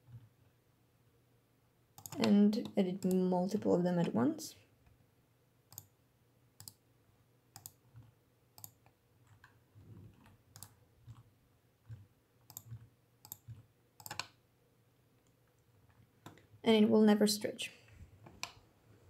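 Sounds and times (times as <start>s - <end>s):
faint mouse and keyboard clicks: 2.0s - 4.2s, 5.7s - 6.0s, 6.6s - 6.8s, 7.5s - 14.4s.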